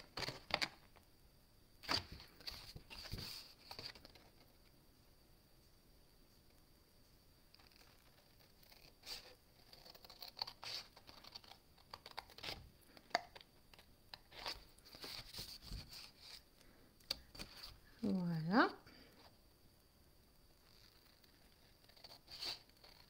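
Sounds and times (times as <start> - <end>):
paper rustling: 1.8 - 4.7, 14.2 - 16.4, 20.6 - 23.0.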